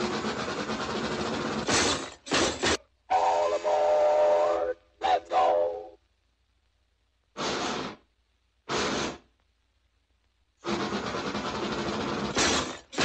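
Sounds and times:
steam chuffing: 7.4s - 8.0s.

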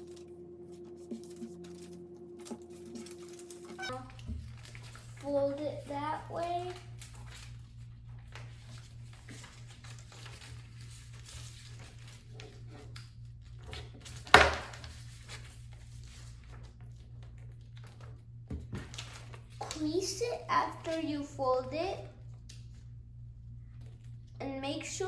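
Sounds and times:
paper rustling and folding: 0.0s - 21.4s.

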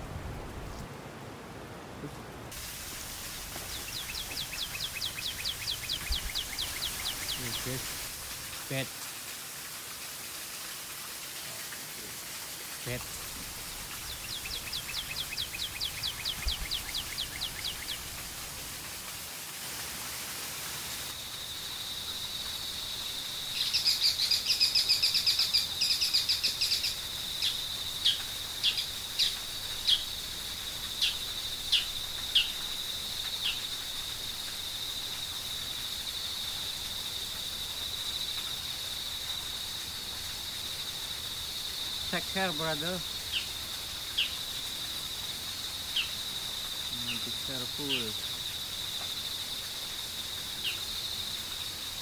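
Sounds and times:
birds chirping: 2.0s - 8.9s, 12.8s - 18.8s, 21.5s - 34.4s, 41.9s - 44.8s, 45.5s - 48.7s.

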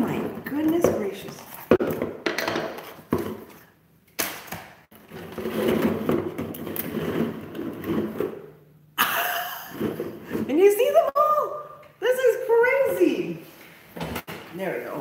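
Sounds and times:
plastic bottles clattering: 4.9s - 8.5s.

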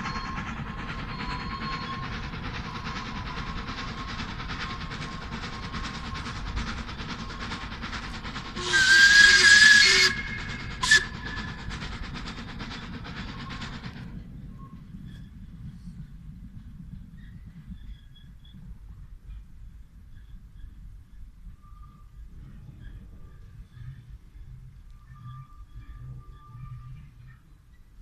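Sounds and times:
rush of steam: 0.0s - 16.2s
passing train running: 0.0s - 28.0s
steam locomotive whistle: 8.6s - 11.7s.

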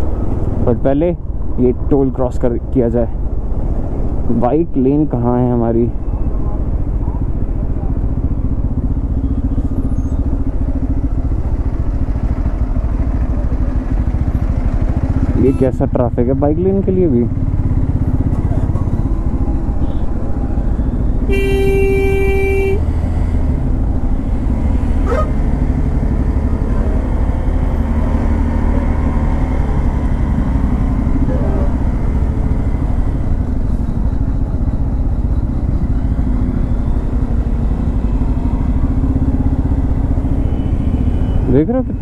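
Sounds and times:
motorcycle engine running: 6.0s - 42.0s
vehicle horn honking: 21.3s - 23.0s, 40.4s - 41.5s.

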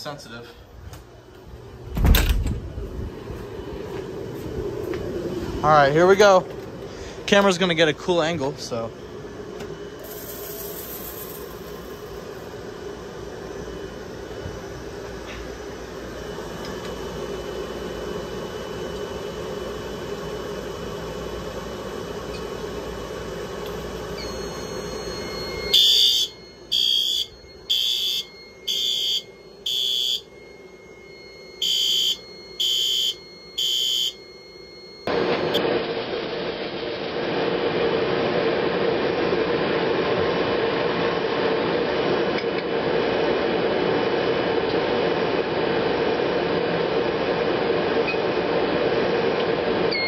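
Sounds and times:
fog machine hissing: 9.9s - 16.4s
fire alarm high-pitched beeps: 24.0s - 35.6s.

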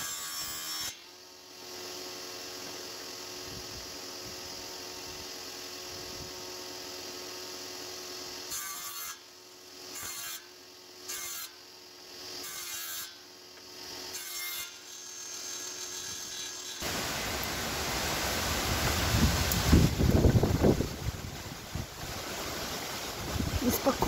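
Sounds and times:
saw cutting boards: 0.0s - 3.1s, 8.0s - 17.5s.

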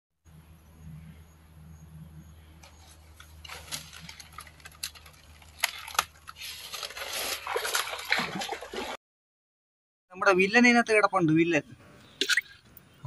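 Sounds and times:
water splashing: 2.6s - 9.0s.

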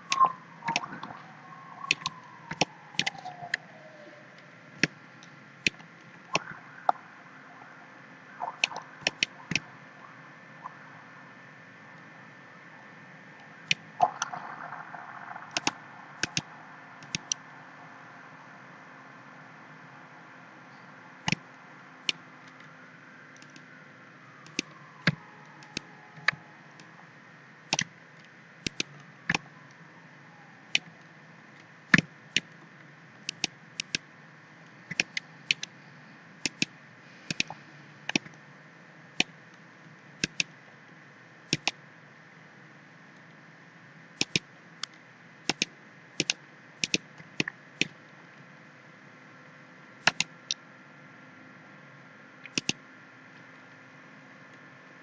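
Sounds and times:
low background hum: 0.0s - 55.0s
mouse buttons clicking: 0.1s - 1.1s, 1.9s - 3.3s, 8.4s - 9.6s, 15.5s - 17.4s, 24.4s - 24.7s, 25.6s - 26.4s, 28.7s - 29.4s, 36.4s - 38.2s, 40.2s - 40.5s, 41.5s - 41.8s, 44.2s - 44.4s, 45.5s - 47.0s, 50.1s - 50.3s, 52.5s - 52.8s.

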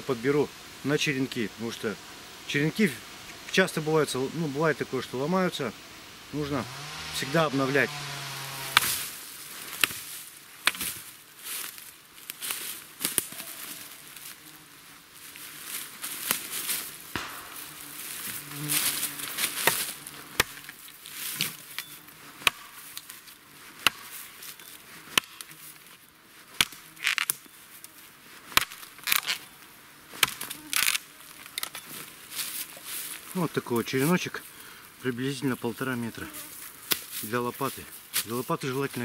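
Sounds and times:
rustling of pole and brush: 6.4s - 39.0s
hatchet chopping wood: 8.6s - 9.0s, 17.2s - 17.8s, 19.5s - 20.8s, 22.4s - 23.1s, 23.8s - 24.2s, 25.1s - 25.5s.

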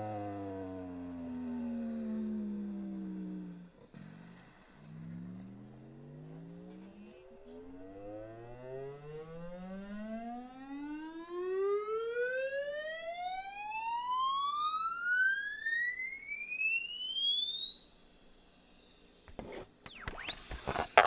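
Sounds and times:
rising frequency sweep tone: 0.0s - 12.4s.

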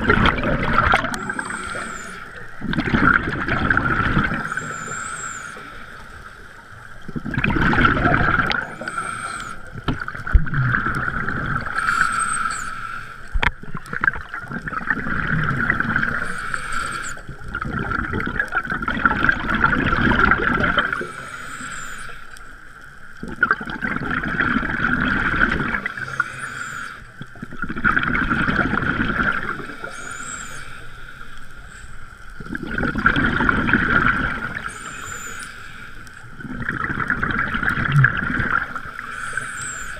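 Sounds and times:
exhaust bubbles rumbling: 0.0s - 4.9s, 7.0s - 9.0s, 17.3s - 21.0s, 32.4s - 34.8s, 36.4s - 39.0s
diver breathing through regulator: 0.9s - 2.8s, 8.5s - 9.7s, 11.6s - 13.4s, 16.1s - 17.2s, 29.4s - 32.1s.

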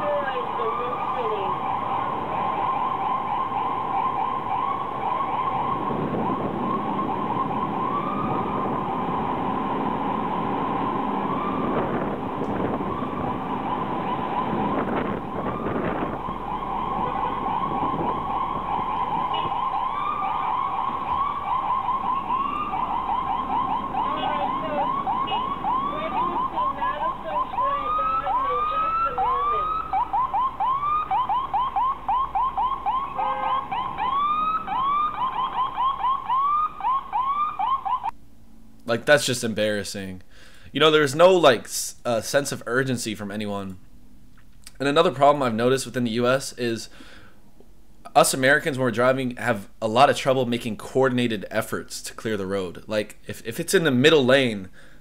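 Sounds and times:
fast yelp siren: 0.0s - 38.1s
wailing siren: 0.0s - 38.2s
city traffic: 0.0s - 55.0s.

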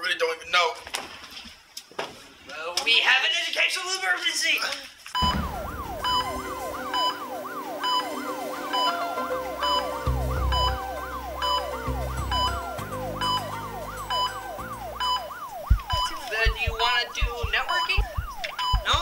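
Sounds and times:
low rumbling tones: 5.2s - 6.9s
pulsing beep: 5.2s - 8.2s, 9.6s - 19.0s
wailing siren: 5.2s - 19.0s.

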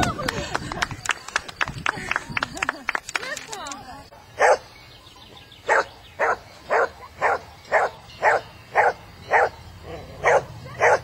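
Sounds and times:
dog barking: 4.4s - 4.6s, 5.7s - 9.6s, 10.2s - 11.0s.

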